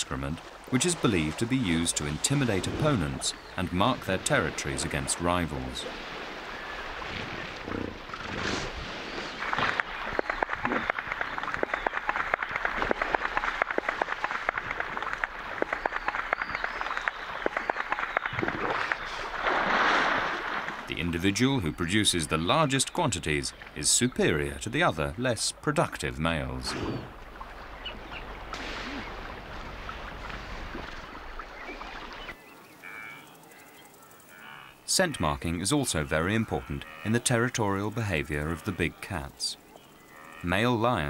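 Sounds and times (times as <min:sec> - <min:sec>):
hippo splashing in water: 0:00.0 - 0:21.4, 0:26.5 - 0:32.4.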